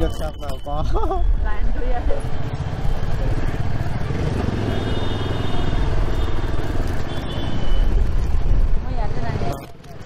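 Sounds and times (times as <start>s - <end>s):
motorcycle engine rumbling: 0.0s - 10.0s.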